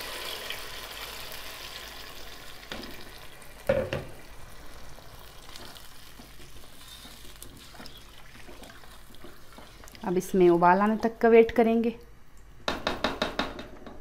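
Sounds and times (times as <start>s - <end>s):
food sizzling and hissing: 0.0s - 10.1s
water pouring into pot: 0.0s - 10.1s
knock: 3.7s - 4.1s, 12.7s - 14.0s
plastic spoon stirring liquid: 5.5s - 11.6s.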